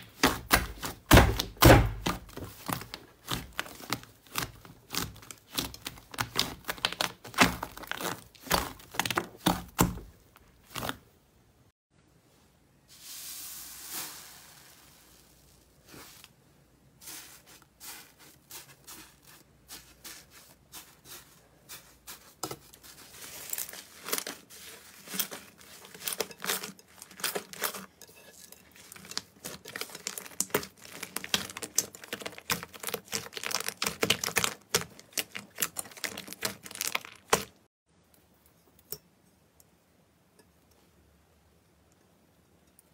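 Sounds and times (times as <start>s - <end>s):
foamy slime tearing: 0.0s - 10.0s, 28.8s - 37.6s
hands squishing sticky slime: 0.0s - 11.0s, 28.7s - 37.6s.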